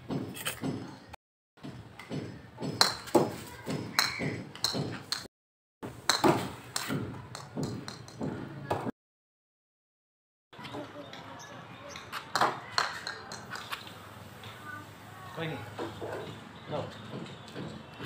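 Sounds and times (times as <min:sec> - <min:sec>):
plastic ball bouncing on concrete: 0:02.0 - 0:05.3, 0:06.1 - 0:08.9, 0:11.9 - 0:13.9
plastic bat hitting ball: 0:02.6 - 0:05.3, 0:06.1 - 0:08.9.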